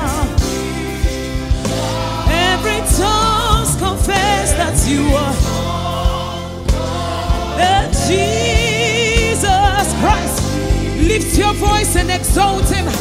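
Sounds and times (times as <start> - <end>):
gospel band playing: 0.0 - 13.0
sung vocals with vibrato: 0.0 - 13.0.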